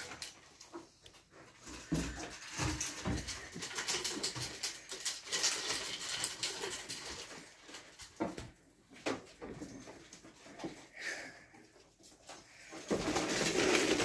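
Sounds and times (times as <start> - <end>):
small paws scrabbling: 0.0 - 14.0.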